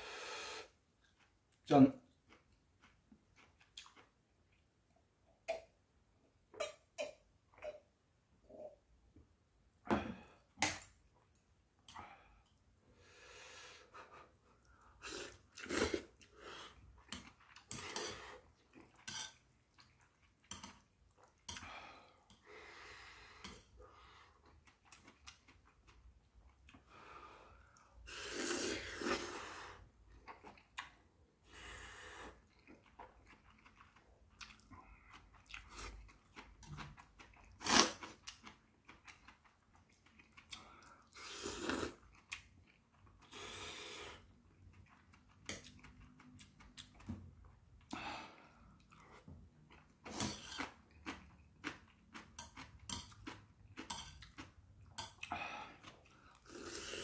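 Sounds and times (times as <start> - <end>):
chewing: 1.0 - 4.7, 14.6 - 22.4, 24.3 - 26.8, 32.4 - 43.3, 44.4 - 57.0
slurping noodles: 15.0 - 18.5, 28.1 - 29.8, 41.1 - 42.0, 56.4 - 57.0.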